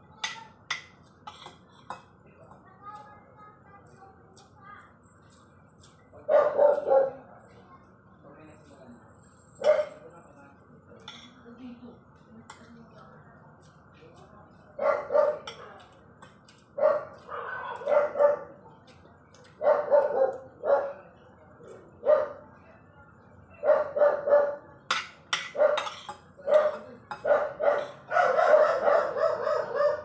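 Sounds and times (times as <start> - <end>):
dog barking: 6.3 - 7.2, 9.6 - 10.0, 14.8 - 15.5, 16.8 - 18.6, 19.6 - 21.1, 22.0 - 22.4, 23.6 - 24.7, 25.5 - 25.9, 26.5 - 30.0.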